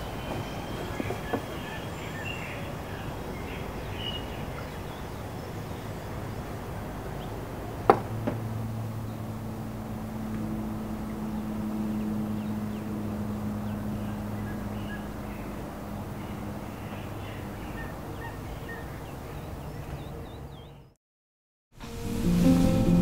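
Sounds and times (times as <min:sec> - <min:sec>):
bird chirps: 0:00.0 - 0:05.9, 0:13.6 - 0:15.6, 0:16.2 - 0:21.0
low hum: 0:08.1 - 0:17.6
faint hiss: 0:21.8 - 0:23.0.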